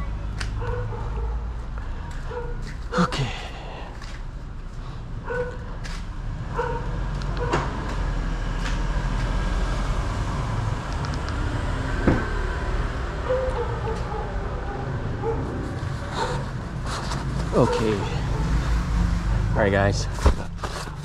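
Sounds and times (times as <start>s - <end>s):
footsteps on concrete: 1.6s - 3.0s
dog yipping: 13.2s - 15.5s.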